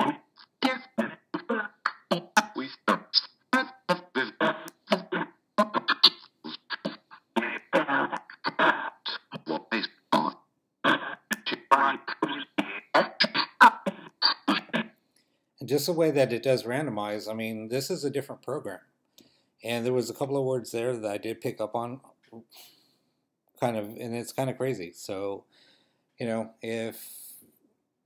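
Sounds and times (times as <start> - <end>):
clipped voice fragments: 0.0 - 14.9.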